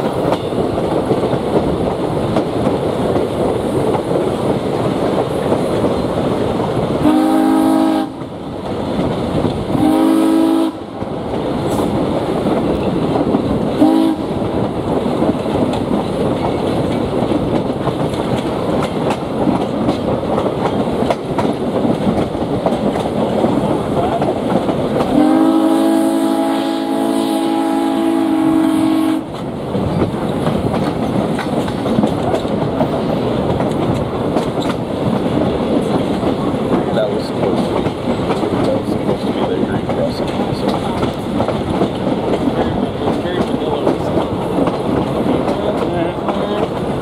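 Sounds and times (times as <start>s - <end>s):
train wheels clickety-clack: 0.0s - 47.0s
steam whistle blasts: 7.0s - 8.2s, 9.8s - 10.8s, 25.1s - 29.2s.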